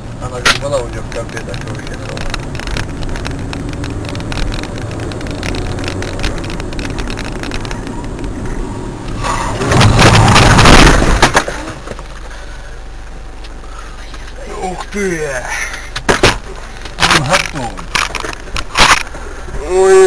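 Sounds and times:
road and engine noise inside car: 0.0 - 20.0
cars crashing: 0.2 - 12.9, 14.6 - 20.0
light rattling clicks: 0.4 - 8.4.

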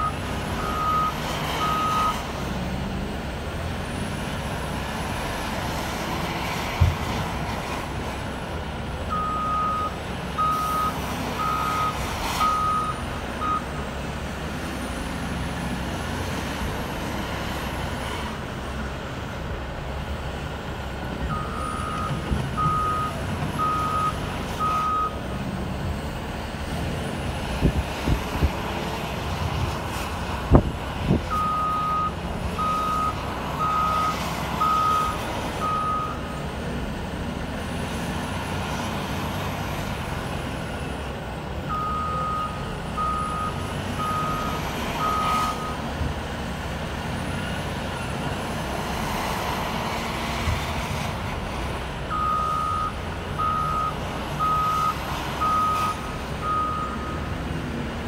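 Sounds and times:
reversing alarm beeping: 0.0 - 2.2, 9.1 - 13.8, 21.3 - 25.2, 31.3 - 36.4, 41.7 - 45.8, 52.1 - 57.3
diesel engine running: 0.0 - 58.0.

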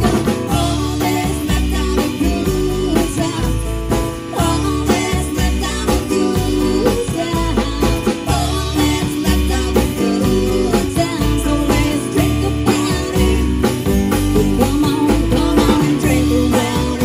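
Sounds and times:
live band playing: 0.0 - 17.0
man singing into microphone: 4.3 - 13.6, 14.6 - 17.0.

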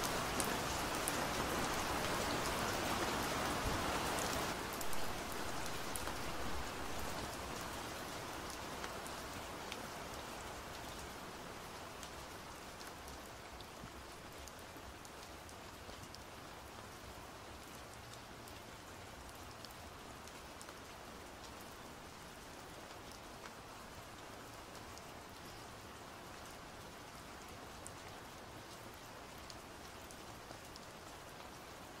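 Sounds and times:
soft steady rain: 0.0 - 32.0.

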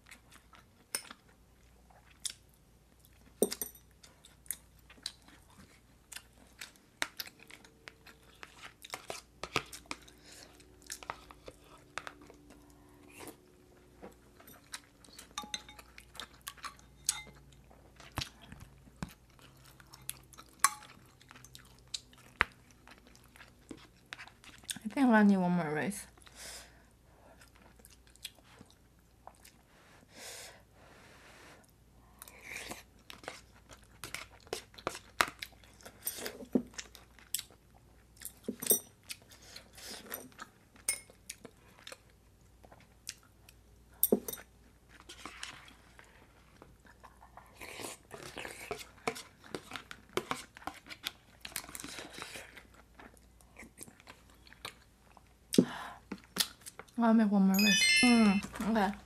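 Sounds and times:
chewing: 0.0 - 3.4, 4.0 - 24.8, 27.3 - 29.7, 31.6 - 43.6, 44.4 - 55.4, 56.1 - 57.0
metal utensils clinking on bowls: 15.4 - 15.9, 16.9 - 17.4, 57.6 - 58.5.

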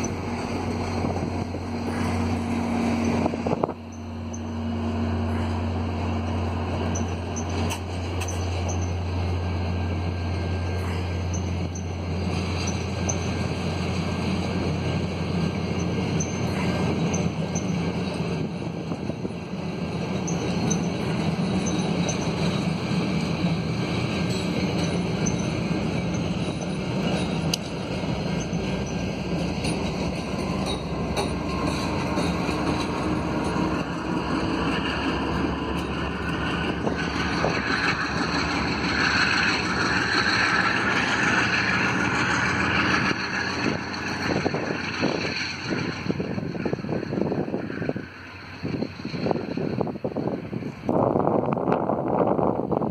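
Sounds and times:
diesel locomotive passing: 0.0 - 52.9
train wheels rumbling on rail: 0.0 - 52.9
clicks at rail joints: 6.9 - 8.9.

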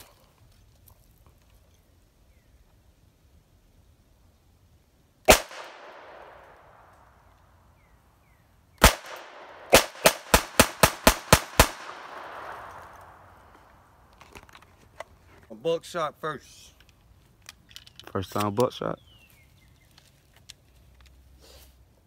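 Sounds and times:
pistol shots echoing: 5.3 - 7.0, 8.8 - 13.3.

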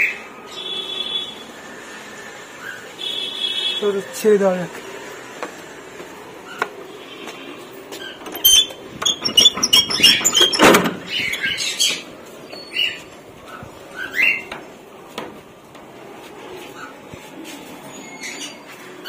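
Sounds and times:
birds chirping high: 0.0 - 1.4, 6.5 - 14.6, 17.9 - 18.7.

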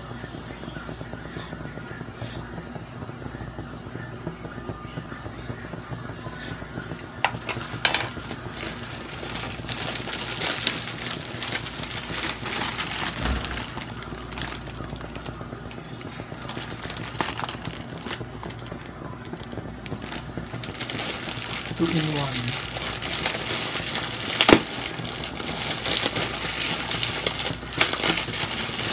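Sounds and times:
steady low hum: 0.0 - 28.9
plastic bag crinkling: 7.3 - 15.3, 16.4 - 28.9.

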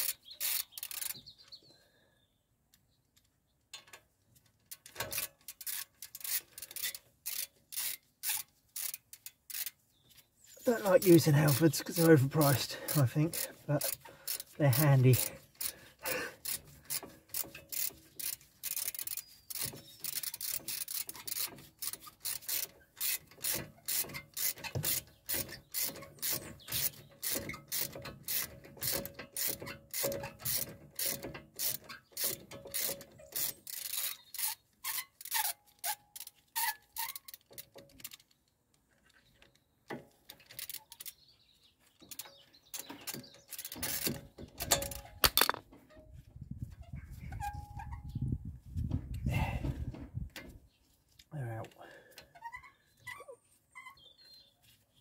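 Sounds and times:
ratchet wrench clicking: 0.0 - 1.2, 4.7 - 9.8, 11.5 - 38.3, 40.2 - 41.2, 42.1 - 45.6.

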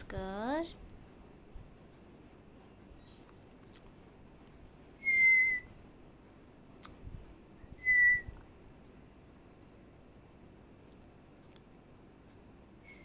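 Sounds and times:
short clear whistles: 5.0 - 5.7, 7.8 - 8.4.

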